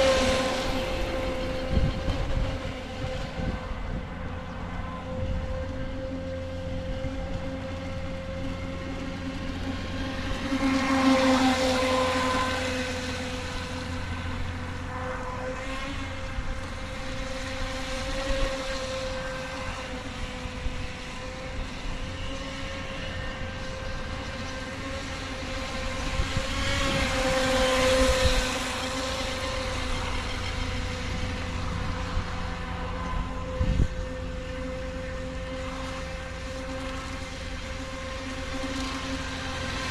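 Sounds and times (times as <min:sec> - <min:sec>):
boat motor whine: 0:00.0 - 0:39.9.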